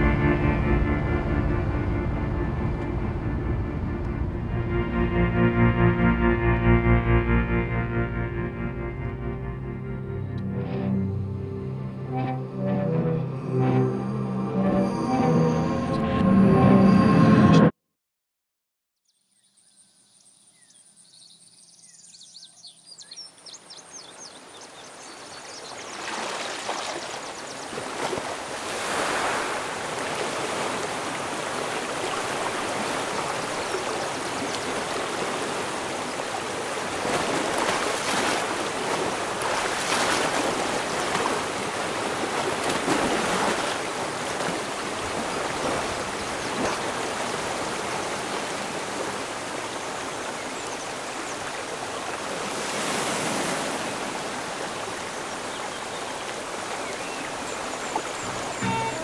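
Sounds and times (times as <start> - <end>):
river water flowing: 23.3 - 59.0.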